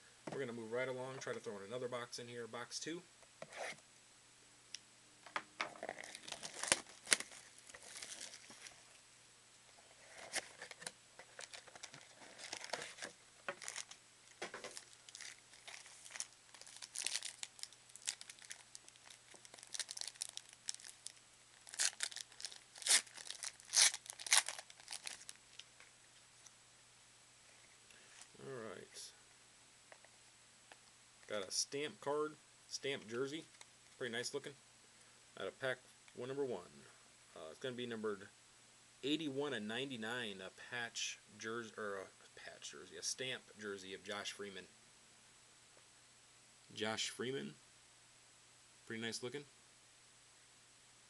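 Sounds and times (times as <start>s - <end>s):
foil card packs tearing and crinkling: 5.8s - 8.8s, 10.3s - 14.0s, 14.6s - 25.4s.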